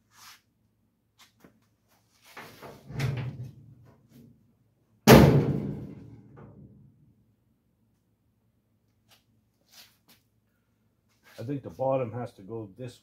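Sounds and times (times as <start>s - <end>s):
steel door slamming: 5.1s - 6.0s.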